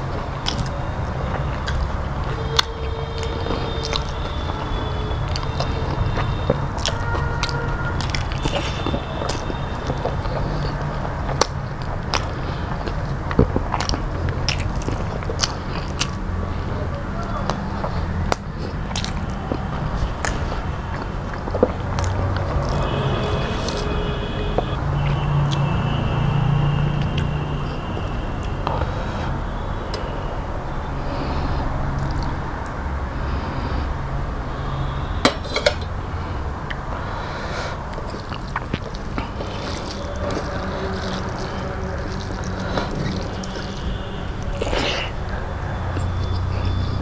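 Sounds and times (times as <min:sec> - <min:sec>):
man chewing food: 0:00.0 - 0:30.1, 0:30.9 - 0:33.8, 0:35.8 - 0:47.0
wet mouth clicks and smacks: 0:00.4 - 0:04.7, 0:05.3 - 0:16.4, 0:17.4 - 0:23.9, 0:32.0 - 0:32.8, 0:37.9 - 0:45.3
fingers squishing rice: 0:38.0 - 0:44.0.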